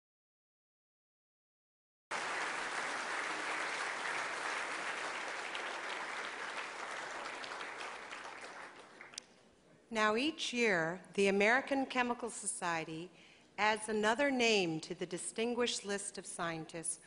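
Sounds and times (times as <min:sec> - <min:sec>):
audience applauding: 0:02.1 - 0:09.2.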